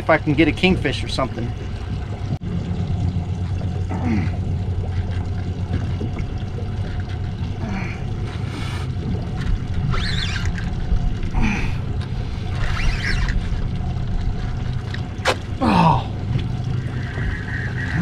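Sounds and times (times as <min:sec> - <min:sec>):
steady low hum: 0:00.0 - 0:18.0
water splashing against boat hull: 0:00.0 - 0:18.0.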